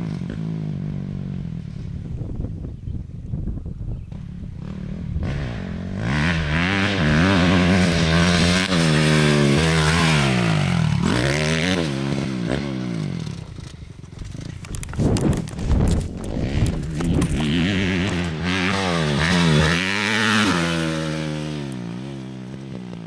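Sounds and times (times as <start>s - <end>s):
dirt bike engine revving: 4.0s - 23.0s
scraping clatter: 13.4s - 18.4s.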